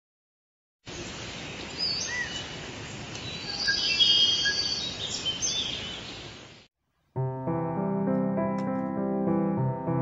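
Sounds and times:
birds chirping and trilling: 0.9 - 6.7.

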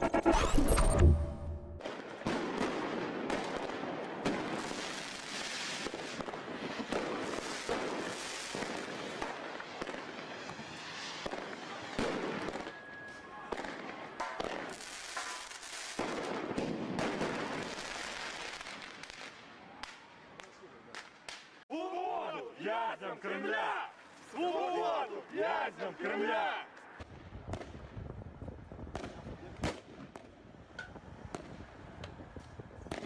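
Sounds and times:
fireworks bangs and crackles: 1.8 - 21.6, 27.0 - 33.0
firework whistle: 9.9 - 13.8.

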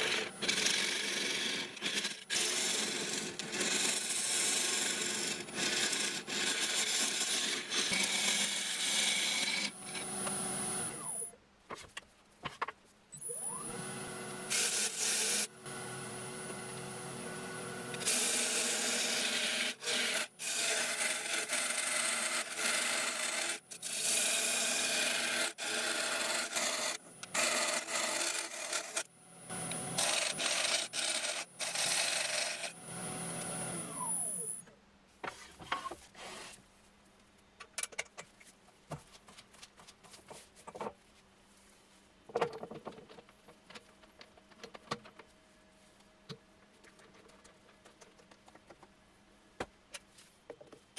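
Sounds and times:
tool scraping spinning wood: 0.0 - 10.1
wood lathe motor whine: 0.0 - 11.2, 13.3 - 34.4.

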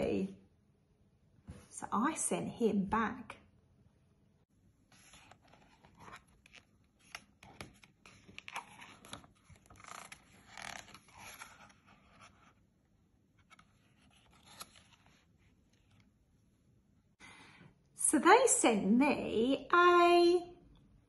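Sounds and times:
card and paper rustling: 4.8 - 16.2.

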